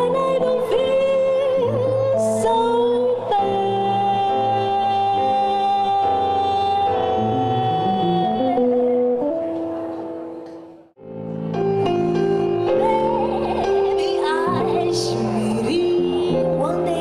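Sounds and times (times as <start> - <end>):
woman singing jazz: 0.0 - 9.0, 12.4 - 17.0
piano: 0.0 - 17.0.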